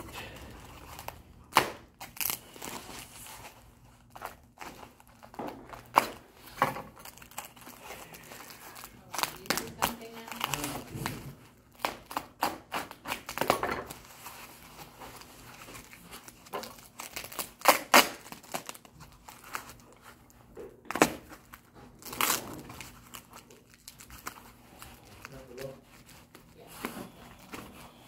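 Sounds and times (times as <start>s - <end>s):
packing wrap crinkling and tearing: 0.0s - 28.0s.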